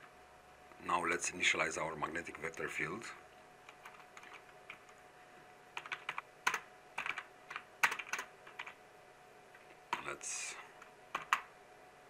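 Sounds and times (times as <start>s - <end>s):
keyboard typing: 3.7s - 5.0s, 5.8s - 8.8s, 11.1s - 11.5s.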